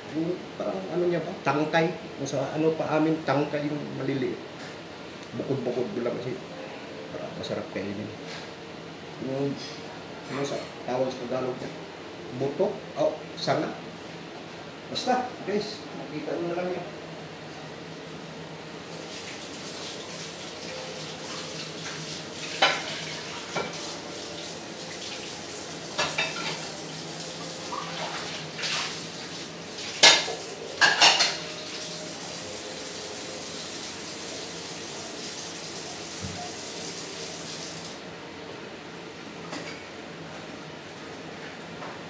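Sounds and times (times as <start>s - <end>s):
dishes and utensils clinking: 22.4s - 23.8s, 25.9s - 26.8s, 29.9s - 31.7s.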